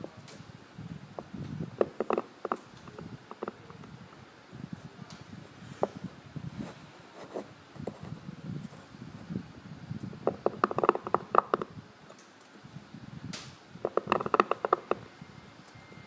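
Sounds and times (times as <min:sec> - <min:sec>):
stone rubbing in fingers: 0:01.8 - 0:03.6, 0:10.2 - 0:11.7, 0:13.8 - 0:15.1
knife chipping stone: 0:13.9 - 0:15.0.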